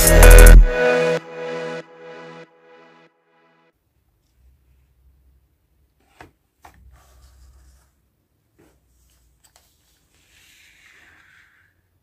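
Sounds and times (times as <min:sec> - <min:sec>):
faint scraping and rustling on paper: 0:06.0 - 0:12.0.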